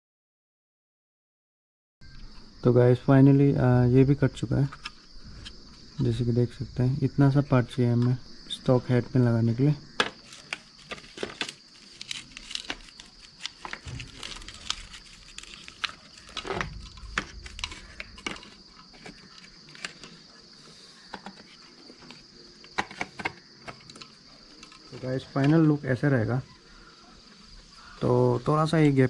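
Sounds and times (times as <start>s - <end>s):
crickets chirring: 2.0s - 29.0s
plastic parts clicking and knocking: 10.0s - 20.2s, 21.1s - 25.6s.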